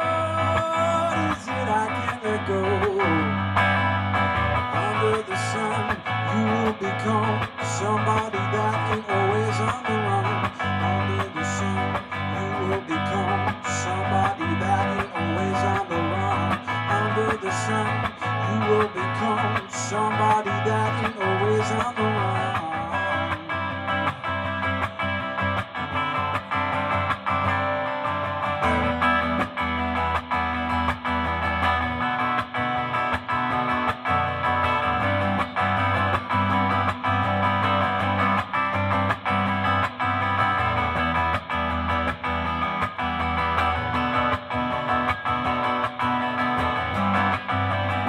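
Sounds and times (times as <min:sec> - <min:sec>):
bass notes: 0:00.0 - 0:48.0
electric guitar strumming chords: 0:00.0 - 0:48.0.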